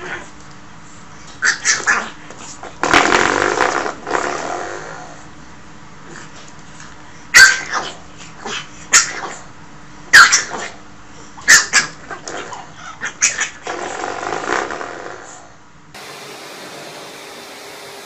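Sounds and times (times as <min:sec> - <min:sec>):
puppy barking: 0:01.4 - 0:02.2, 0:07.3 - 0:09.5, 0:10.1 - 0:10.8, 0:11.4 - 0:13.6.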